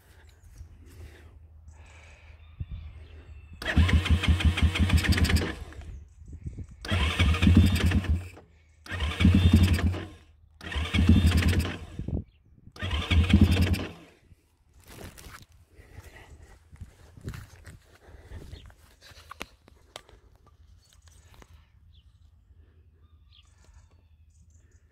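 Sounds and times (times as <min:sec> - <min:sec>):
electric starter cranking engine: 0:03.6 - 0:06.0, 0:06.8 - 0:12.2, 0:12.8 - 0:14.2.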